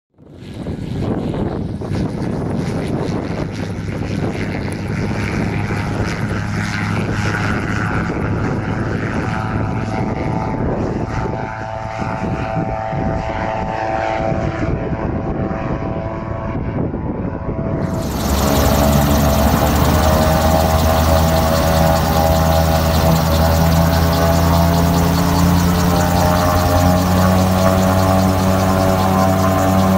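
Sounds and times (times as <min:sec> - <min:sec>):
gyroplane engine and propeller: 0:00.2 - 0:14.9, 0:17.6 - 0:29.9
engine drone inside cockpit: 0:17.8 - 0:29.9.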